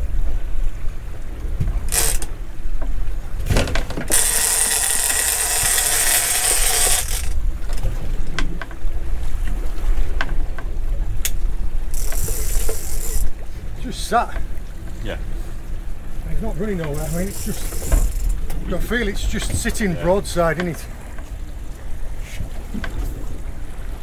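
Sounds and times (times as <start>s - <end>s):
low wind rumble: 0.0s - 24.0s
fishing reel ratchet clicking: 1.9s - 2.3s, 4.1s - 7.4s, 11.9s - 13.3s, 16.9s - 18.4s.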